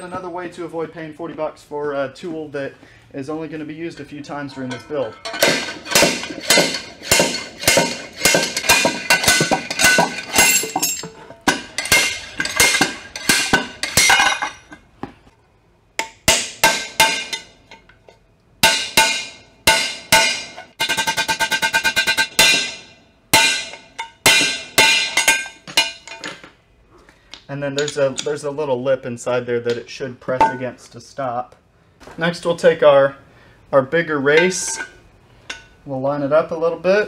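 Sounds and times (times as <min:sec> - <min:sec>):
hammer striking steel: 0:04.5 - 0:14.5, 0:16.0 - 0:17.6, 0:18.6 - 0:26.2.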